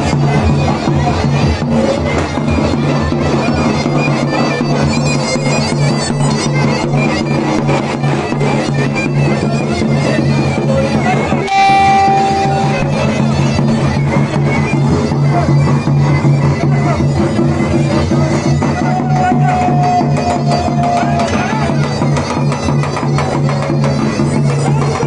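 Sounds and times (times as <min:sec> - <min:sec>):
steady drum beats: 0:00.0 - 0:25.0
shrill reedy pipe: 0:11.4 - 0:14.7.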